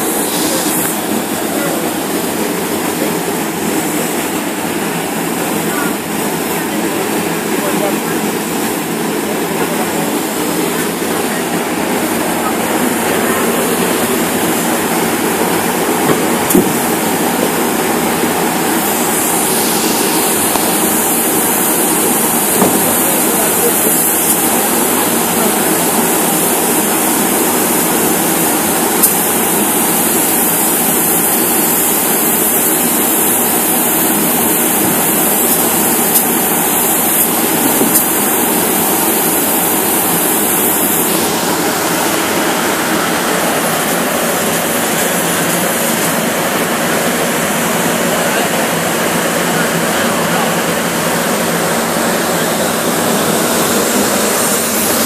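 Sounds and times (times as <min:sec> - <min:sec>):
foam gun spraying hiss: 0:00.0 - 0:55.0.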